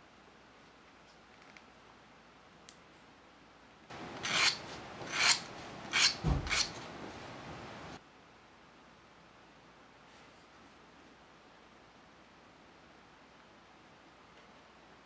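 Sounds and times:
sanding stick on wood: 0:04.2 - 0:06.8.

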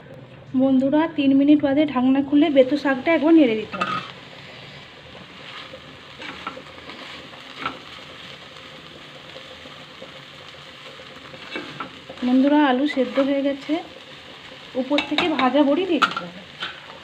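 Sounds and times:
greens and potatoes sizzling: 0:00.0 - 0:17.0
spatula scraping and knocking pan: 0:05.4 - 0:08.0, 0:11.4 - 0:12.0, 0:14.9 - 0:16.9.

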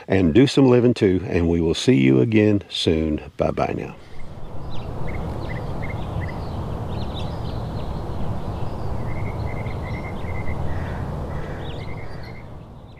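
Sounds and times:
low outdoor rushing noise: 0:00.0 - 0:12.9
small birds chirping: 0:03.6 - 0:12.9.

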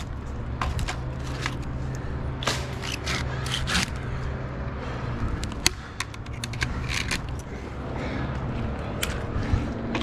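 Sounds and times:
steady low hum: 0:00.0 - 0:10.0
handsaw sawing wood: 0:02.7 - 0:04.0
sharp clicks and small knocks: 0:05.4 - 0:07.5.

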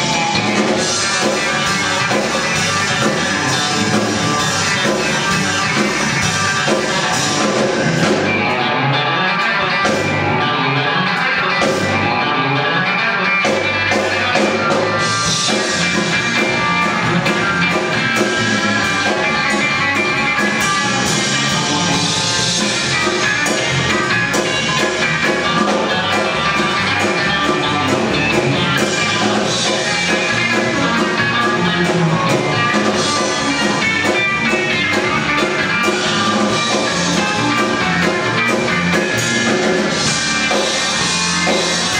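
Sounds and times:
live rock band playing: 0:00.0 - 0:41.9.

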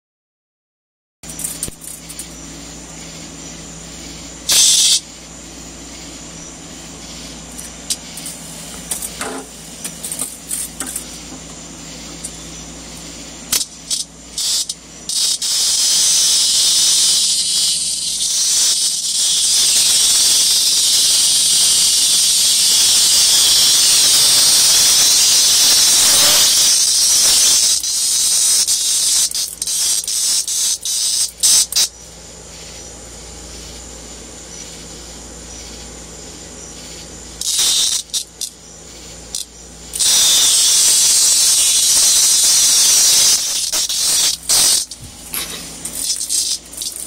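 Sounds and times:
cicada buzzing loudly: 0:01.2 - 0:47.0.

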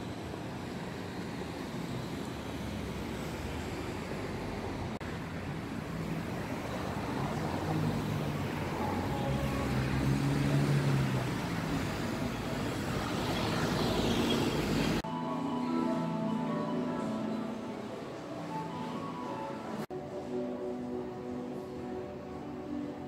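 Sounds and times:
passing cars and buses: 0:00.0 - 0:23.0
music: 0:15.0 - 0:23.0.

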